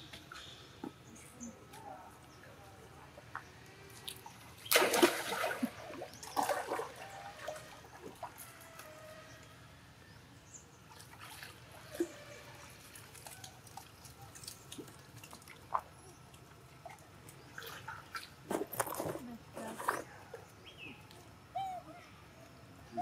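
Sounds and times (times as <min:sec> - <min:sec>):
water splashing: 0:04.0 - 0:08.3.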